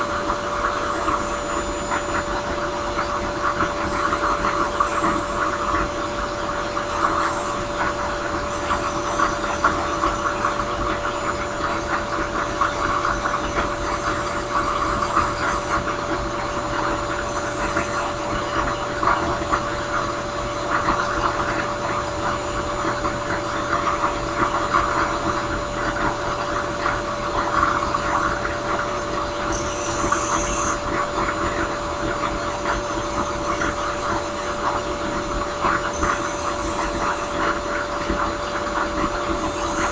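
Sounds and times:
drill press motor hum: 0:00.0 - 0:39.9
wood sanding: 0:29.5 - 0:30.8.

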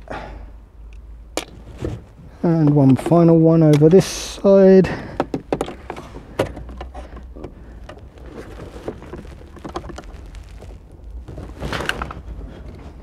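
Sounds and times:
rubbing and clicking: 0:05.4 - 0:13.0
clicks scrapes and rustling: 0:05.5 - 0:13.0.

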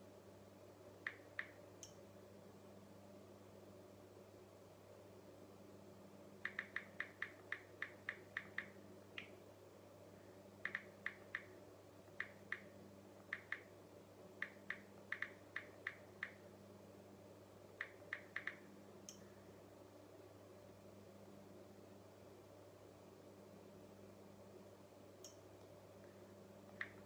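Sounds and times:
steady low hum: 0:00.0 - 0:27.0
smartphone keyboard clicks: 0:06.4 - 0:09.3, 0:10.6 - 0:11.5, 0:14.4 - 0:16.4, 0:17.8 - 0:18.6.

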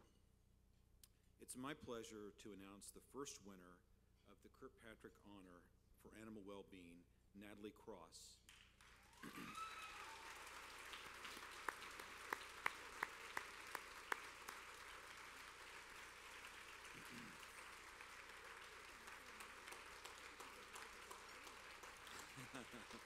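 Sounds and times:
audience applauding: 0:08.5 - 0:23.0.

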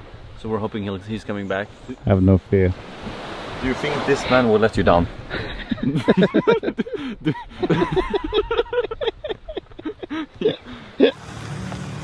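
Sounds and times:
people talking and laughing: 0:05.3 - 0:11.2.

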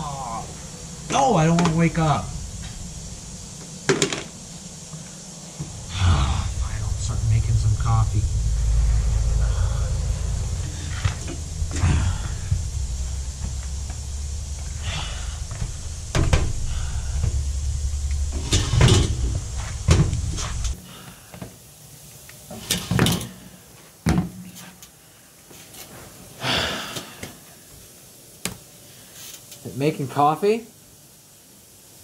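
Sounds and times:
steady low rumble: 0:00.0 - 0:20.8.

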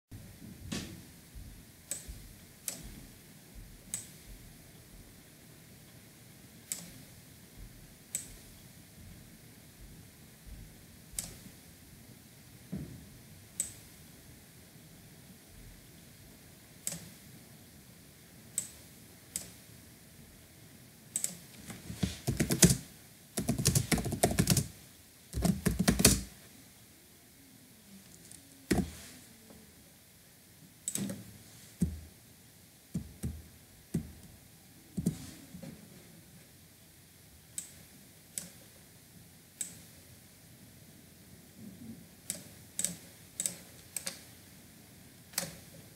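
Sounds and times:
typing on computer keyboard: 0:21.2 - 0:21.4, 0:22.1 - 0:22.8, 0:23.4 - 0:24.7, 0:25.3 - 0:26.3, 0:42.3 - 0:44.2.

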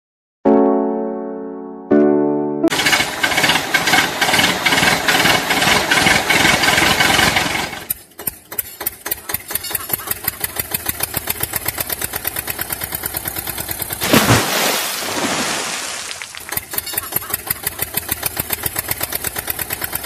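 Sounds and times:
engine running and idling: 0:02.7 - 0:14.1, 0:16.2 - 0:20.0.

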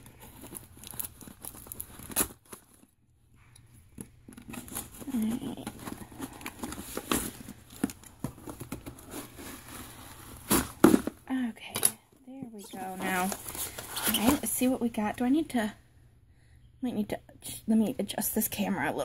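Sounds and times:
cardboard scraping and tearing: 0:04.4 - 0:11.2, 0:12.7 - 0:14.5.

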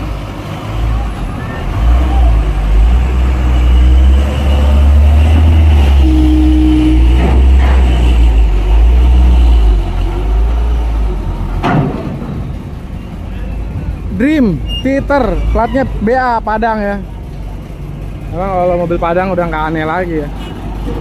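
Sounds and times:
diesel truck engine rumbling: 0:00.0 - 0:21.0
brief steady tone: 0:06.0 - 0:07.0.

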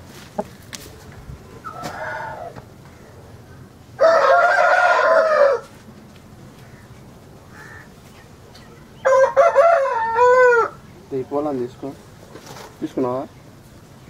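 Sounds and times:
rooster crowing: 0:01.7 - 0:02.6, 0:04.0 - 0:05.7, 0:09.0 - 0:10.8.

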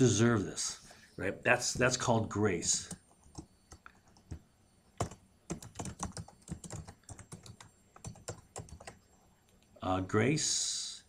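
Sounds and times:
keyboard typing: 0:02.6 - 0:09.0.

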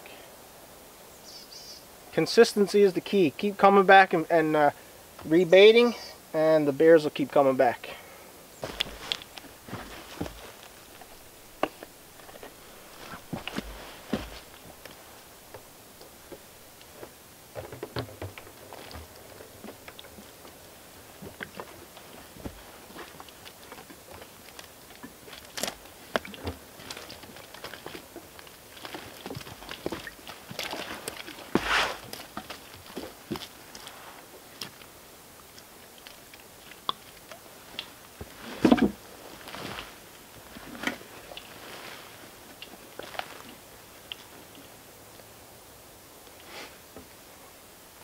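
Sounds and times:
handling clicks and rustles: 0:08.6 - 0:34.9
low knocks and thuds: 0:16.3 - 0:19.8.

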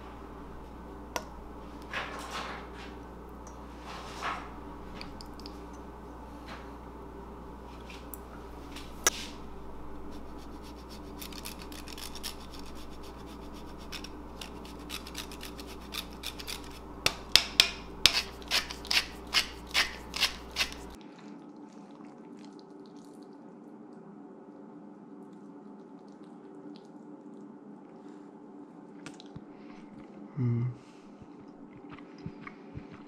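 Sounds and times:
cheese grating: 0:09.9 - 0:21.0.

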